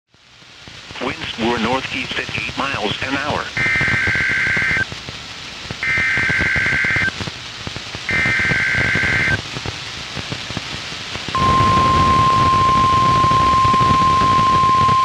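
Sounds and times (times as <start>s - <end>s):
radio hiss: 0.1s - 15.0s
two-tone data bursts: 2.9s - 4.9s, 5.8s - 7.2s, 8.1s - 9.4s, 11.4s - 15.0s
steady warning alarm tone: 3.6s - 4.8s, 5.8s - 7.1s, 8.1s - 9.4s, 11.4s - 15.0s.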